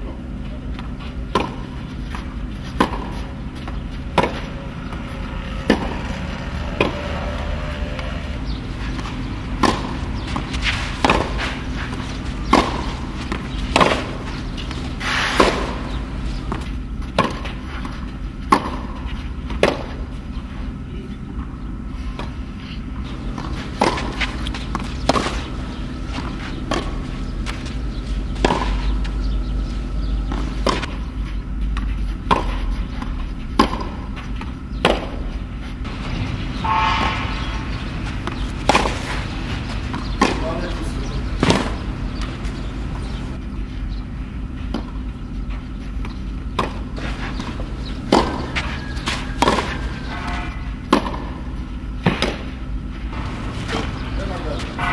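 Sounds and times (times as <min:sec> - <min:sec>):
tennis ball bouncing: 0:00.0 - 0:36.0, 0:36.6 - 0:54.8
steady low hum: 0:00.0 - 0:54.9
tennis ball off racket strings: 0:50.9 - 0:51.4.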